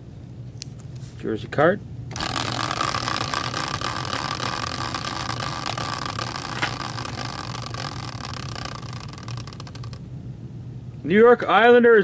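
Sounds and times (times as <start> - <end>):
spinning wheel whirring and ticking: 2.1 - 10.0.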